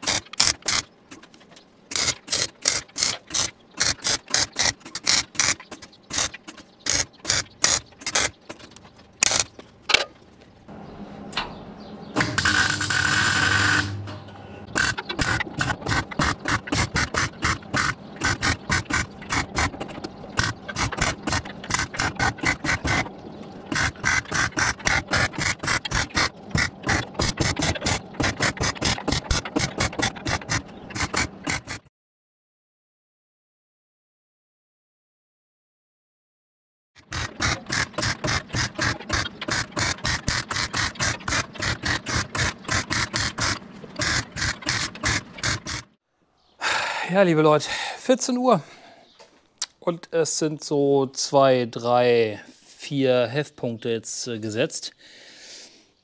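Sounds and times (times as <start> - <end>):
welding arc crackling bursts: 12.2 - 14.0.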